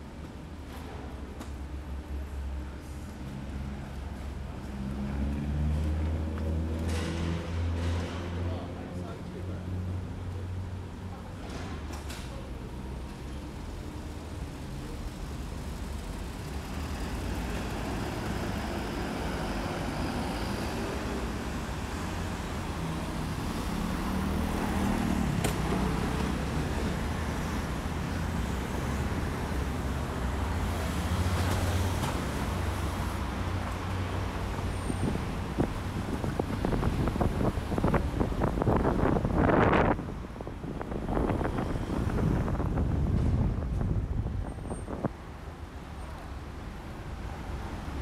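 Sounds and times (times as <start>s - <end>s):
rumble of passing cars: 0.0s - 48.0s.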